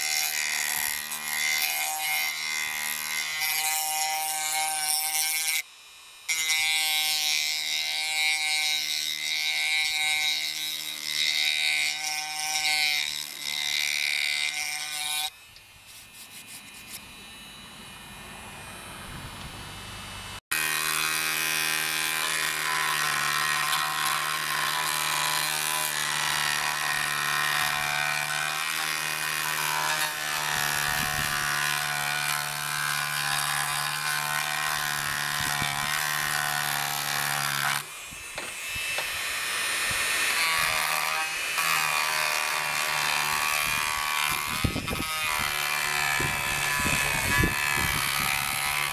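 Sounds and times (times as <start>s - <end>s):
rotary tool motor whine: 0.0s - 48.9s
rough sanding scrape: 11.3s - 17.1s.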